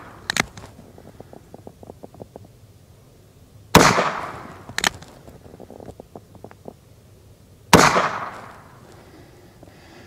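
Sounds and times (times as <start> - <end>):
revolver gunshots: 3.7 - 5.0, 7.7 - 8.6.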